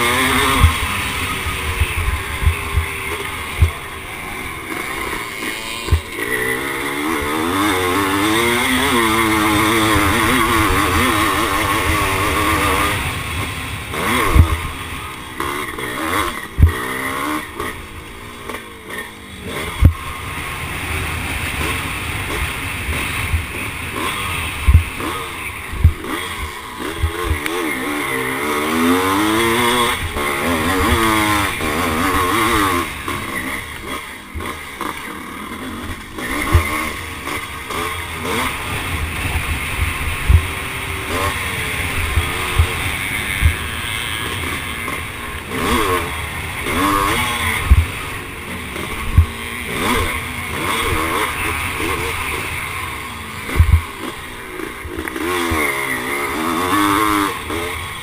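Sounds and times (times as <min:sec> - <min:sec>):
motorcycle engine revving hard: 0:00.0 - 0:58.0.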